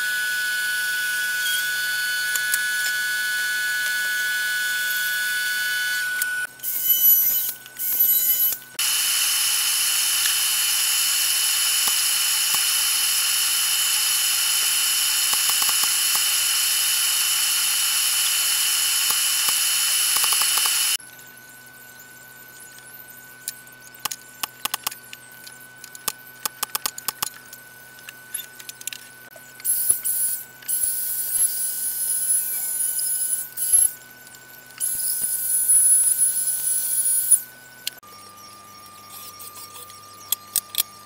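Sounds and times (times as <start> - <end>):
power tool high-pitched whine: 0.0 - 41.0.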